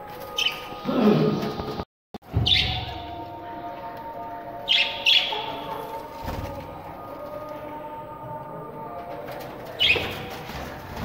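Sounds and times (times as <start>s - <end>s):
budgerigars chirping: 4.7s - 5.8s.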